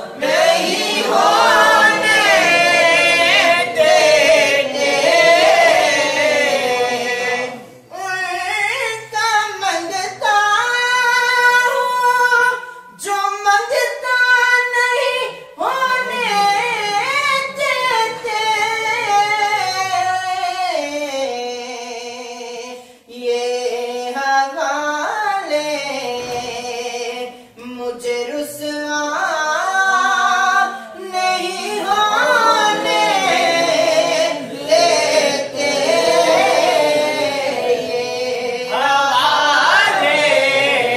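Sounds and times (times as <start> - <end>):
man singing unaccompanied: 7.0 - 35.6.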